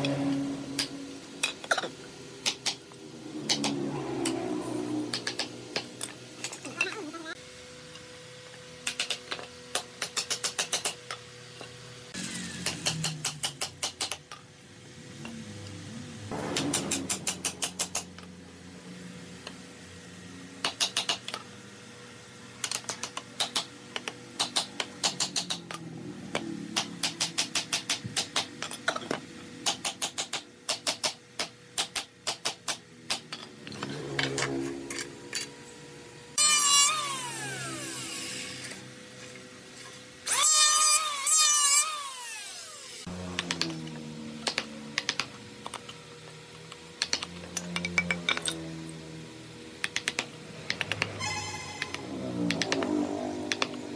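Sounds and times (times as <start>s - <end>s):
power tool whining: 12.1s - 13.0s, 36.4s - 45.9s, 50.5s - 53.9s.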